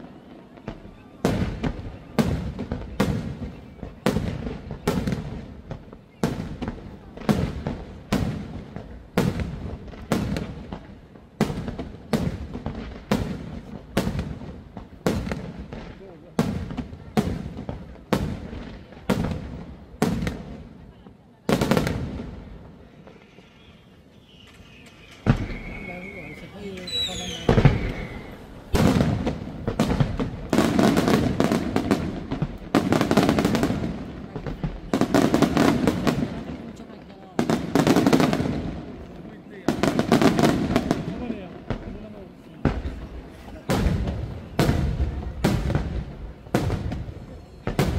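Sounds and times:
rapid firework pops: 0.6s - 20.6s, 25.0s - 26.0s, 26.8s - 47.9s
fireworks shells bursting: 23.0s - 33.7s
firework bangs with rumble: 25.2s - 36.7s, 39.6s - 47.9s.

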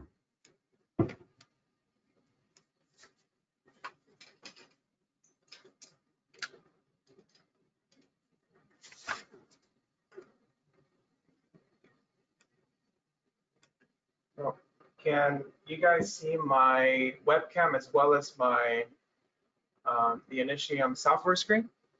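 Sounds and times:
knocks: 1.0s - 1.2s
thump: 1.0s - 1.2s.

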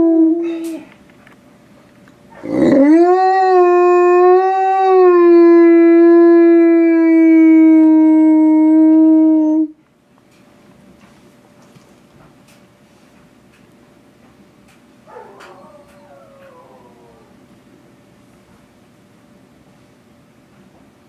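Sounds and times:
wolfdog howling: 2.4s - 9.7s, 15.1s - 17.4s.

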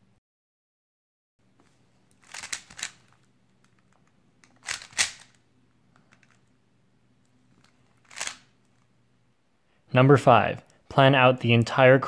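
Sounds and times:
puzzle cube clicking turns: 2.0s - 6.5s, 7.5s - 8.9s.

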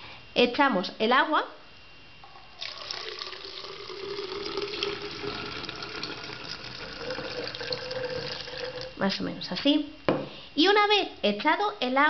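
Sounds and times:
water pouring into bottle: 2.2s - 9.0s.

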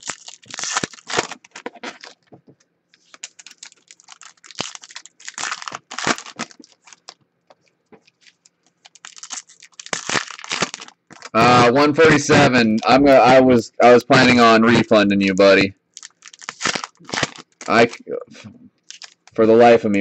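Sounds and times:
foil wrapper crinkling and tearing: 0.0s - 2.3s, 3.0s - 12.9s, 15.4s - 18.0s, 18.8s - 19.4s.

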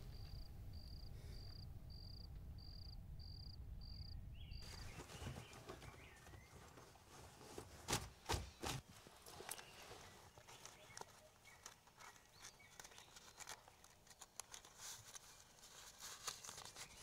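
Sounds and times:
cricket chirping: 0.0s - 4.8s.

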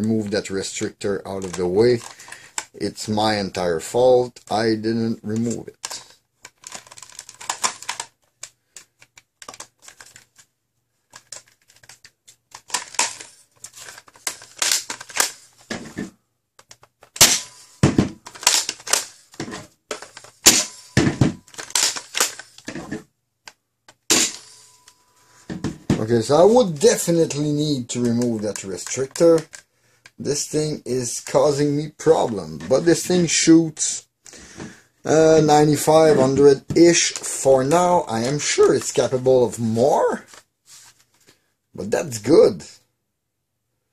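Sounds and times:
plastic toy blaster clicks and clacks: 0.8s - 2.8s, 5.4s - 10.3s, 11.1s - 15.4s, 18.2s - 19.2s, 21.5s - 22.6s, 26.4s - 30.2s.

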